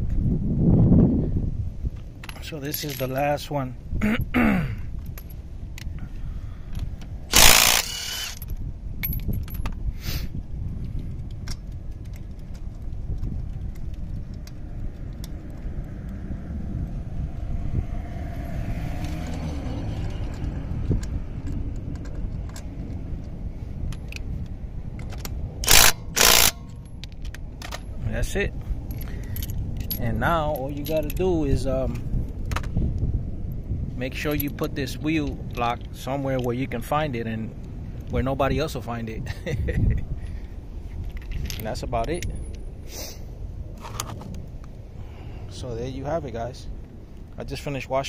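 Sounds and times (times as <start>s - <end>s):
small metallic clicks and rattles: 6.7s - 9.8s, 10.8s - 16.2s, 20.0s - 28.0s, 28.8s - 31.3s, 31.9s - 32.8s, 40.2s - 42.6s
impact wrench hammering: 7.3s - 8.4s, 25.6s - 26.6s.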